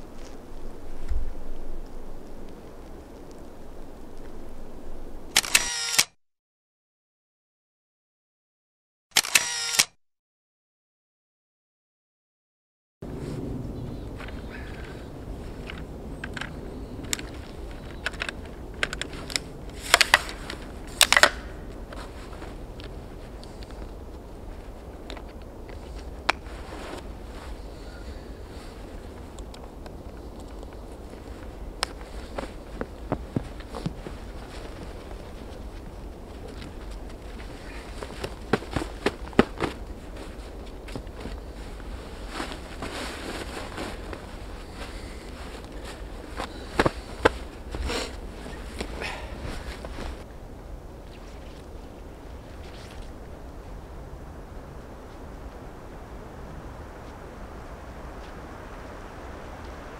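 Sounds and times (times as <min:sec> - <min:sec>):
tripod leg locks clicking: 0:05.4 - 0:06.1, 0:09.2 - 0:09.9, 0:21.0 - 0:21.5
jacket and gear rustling: 0:14.2 - 0:50.3.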